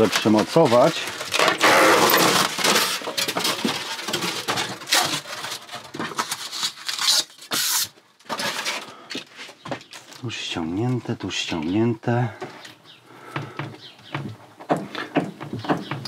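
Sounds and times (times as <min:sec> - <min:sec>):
packaging tearing and rustling: 0:00.0 - 0:08.9.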